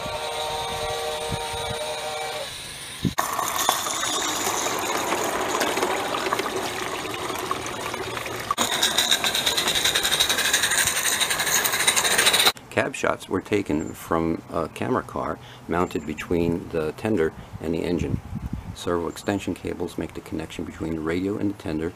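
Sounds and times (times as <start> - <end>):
steam whistle blowing: 0.0 - 2.8
steam locomotive hissing and clattering: 0.0 - 6.4, 8.6 - 12.6.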